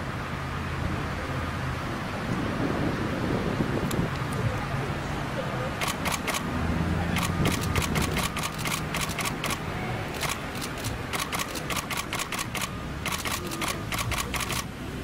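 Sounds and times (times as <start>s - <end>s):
camera shutters clicking: 5.8s - 6.5s, 7.2s - 14.7s.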